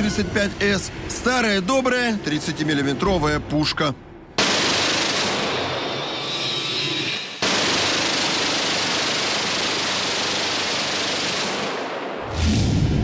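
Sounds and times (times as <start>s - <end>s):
cannon firing rapid bursts: 4.4s - 5.8s, 7.4s - 12.2s.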